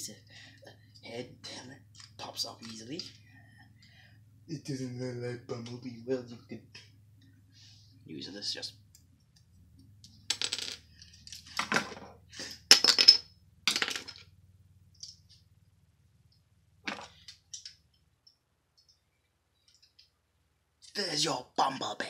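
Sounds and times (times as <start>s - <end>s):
plastic pieces clicking and clattering: 10.0s - 14.2s, 16.9s - 17.8s.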